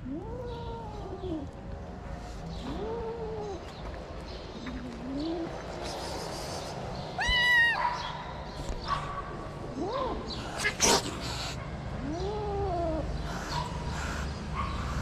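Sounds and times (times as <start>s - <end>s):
high-pitched kitten cry: 7.2s - 7.8s.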